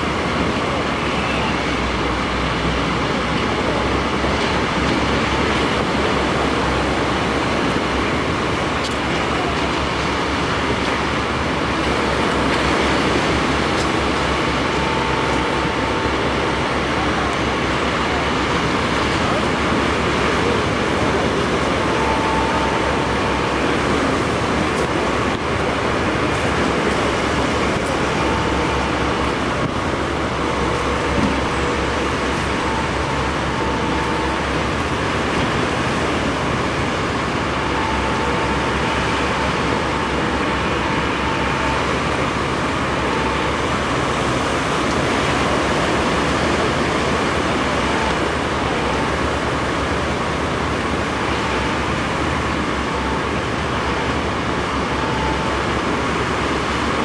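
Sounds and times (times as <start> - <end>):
diesel engines running: 0.0 - 57.0
surf washing: 0.0 - 57.0.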